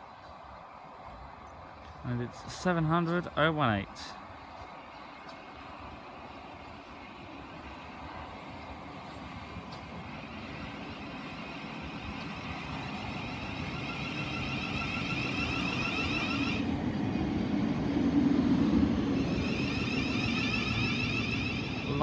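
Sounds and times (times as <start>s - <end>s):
train wheel rumble: 0.0s - 22.0s
high electric whine: 10.0s - 16.7s, 19.2s - 22.0s.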